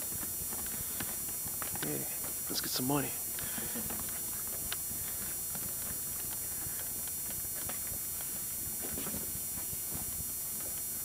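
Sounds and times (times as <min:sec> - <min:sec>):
steady background hiss: 0:00.0 - 0:11.0
footsteps on hard floor: 0:08.8 - 0:10.2.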